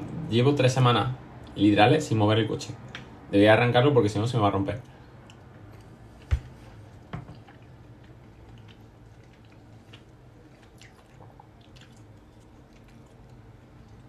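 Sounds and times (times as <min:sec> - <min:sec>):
person chewing: 0:05.0 - 0:14.0
wet mouth sounds: 0:07.3 - 0:14.0.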